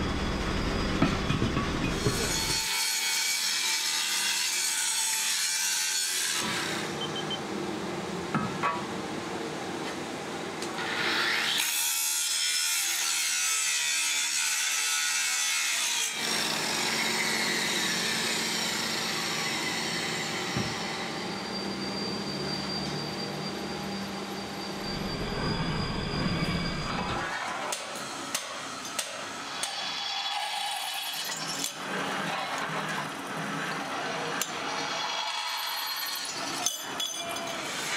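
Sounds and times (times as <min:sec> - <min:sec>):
faint machine whine: 0:00.0 - 0:02.5, 0:19.1 - 0:28.9
angle grinder grinding metal: 0:00.3 - 0:06.6.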